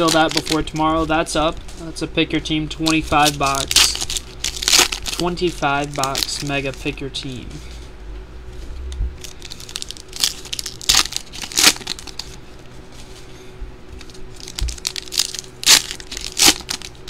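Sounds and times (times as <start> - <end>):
foil packs torn and crinkled: 0.0 - 1.1, 2.9 - 6.9, 9.2 - 12.4, 14.0 - 17.0.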